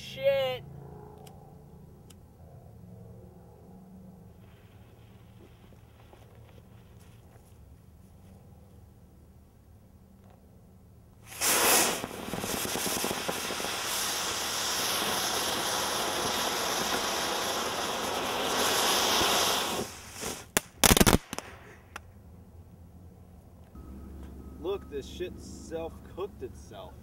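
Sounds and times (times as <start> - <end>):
firework rushing hiss: 4.4 - 6.9, 11.2 - 21.9
firework cracks: 11.2 - 22.1.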